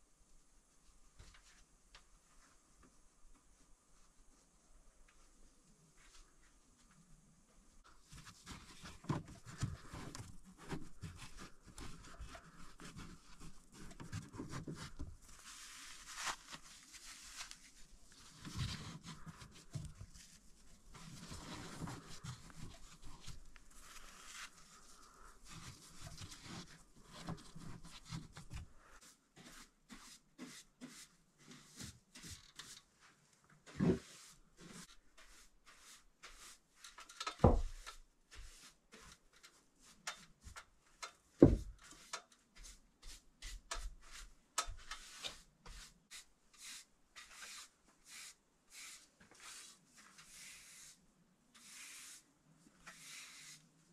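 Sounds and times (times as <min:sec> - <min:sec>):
insulation rustling and scratching: 0:07.8 - 0:28.7.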